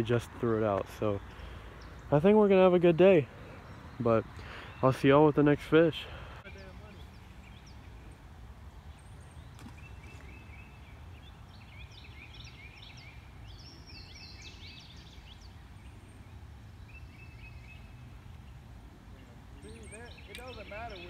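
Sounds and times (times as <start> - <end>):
wild birds chirping and singing: 0.0 - 21.0.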